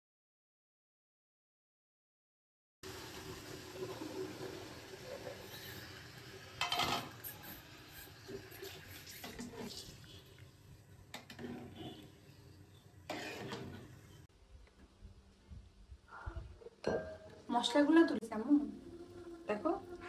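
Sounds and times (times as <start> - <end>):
metal spatula scraping a pot: 6.6 - 10.2, 11.2 - 14.2.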